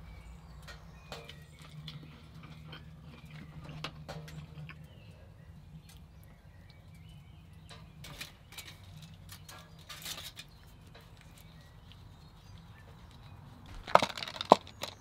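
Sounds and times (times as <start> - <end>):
tortilla rustling on foil: 8.0 - 14.8.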